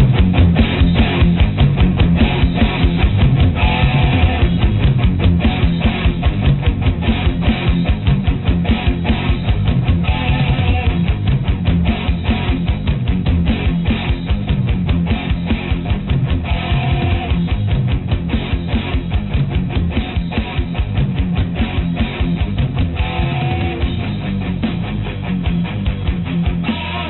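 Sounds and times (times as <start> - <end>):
rock music with guitar and drums: 0.0 - 27.0.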